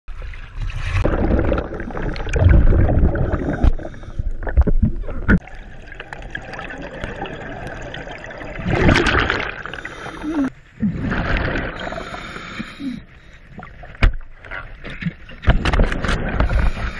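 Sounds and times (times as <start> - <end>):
water splashing and sloshing: 0.1 - 16.9
regulator bubbles rushing: 1.0 - 9.9.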